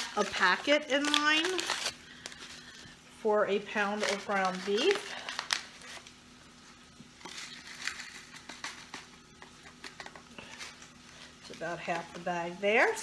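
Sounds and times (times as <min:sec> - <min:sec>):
paper packet rustling: 0:00.0 - 0:02.7, 0:03.8 - 0:06.2, 0:07.2 - 0:12.2.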